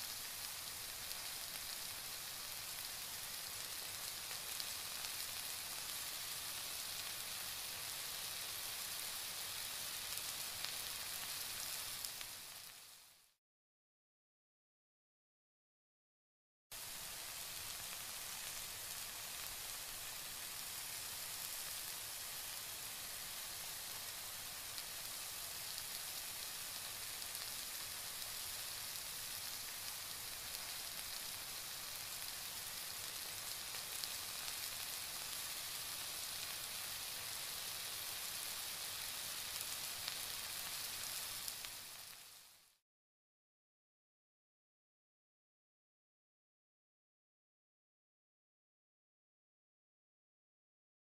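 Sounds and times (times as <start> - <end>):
curry sizzling in a pan: 0.0 - 13.4, 16.7 - 42.8.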